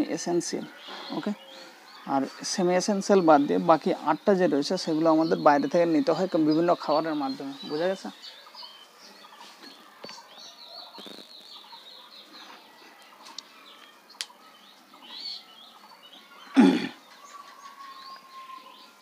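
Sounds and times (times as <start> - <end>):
small birds chirping: 0.0 - 19.0
faint sharp clicks: 13.0 - 14.4.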